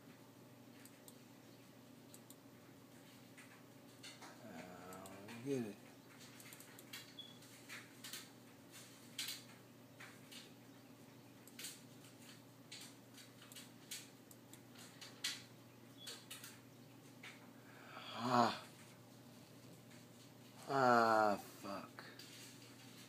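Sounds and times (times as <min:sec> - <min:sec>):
steady low hum: 0:00.0 - 0:23.0
computer mouse clicks: 0:02.1 - 0:02.4, 0:04.9 - 0:05.5, 0:06.3 - 0:07.3, 0:11.4 - 0:11.8
person humming: 0:04.4 - 0:05.3, 0:17.8 - 0:18.7, 0:20.6 - 0:21.9.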